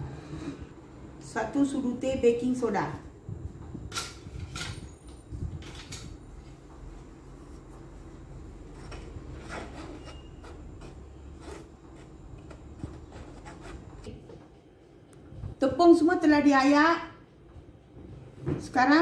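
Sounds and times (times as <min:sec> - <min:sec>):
spoon scraping through sieve: 0:08.6 - 0:14.1.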